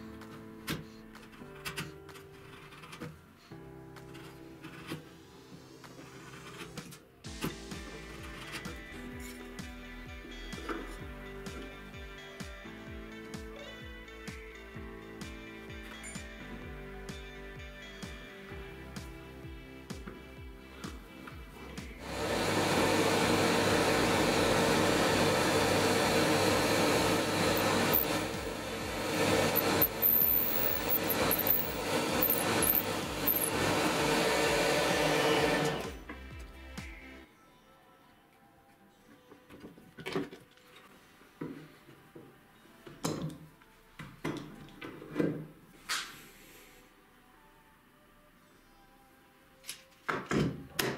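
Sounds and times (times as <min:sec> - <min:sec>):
dust extraction vacuum: 0:21.6 - 0:36.2
drill press motor: 0:22.0 - 0:36.0.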